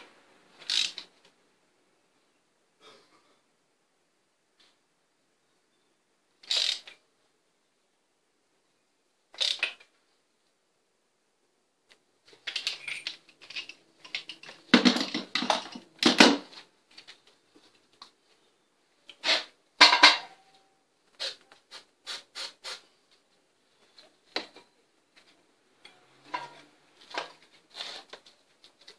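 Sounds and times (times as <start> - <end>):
hand ratchet clicking: 0.6 - 1.0, 6.4 - 6.9
spray can bursts: 21.7 - 22.9.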